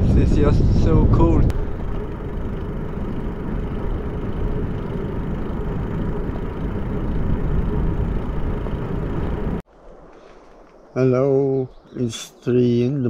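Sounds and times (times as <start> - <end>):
wind rush: 0.0 - 10.2
bicycle tyre rumble on asphalt: 0.2 - 11.0.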